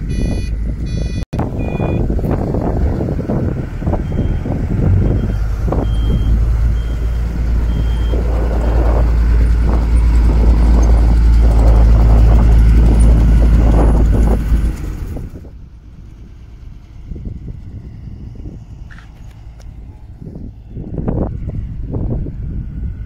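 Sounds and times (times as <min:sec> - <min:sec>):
reversing alarm beeping: 0:00.0 - 0:02.1, 0:03.9 - 0:09.0
diesel machinery engines rumbling: 0:00.0 - 0:23.0.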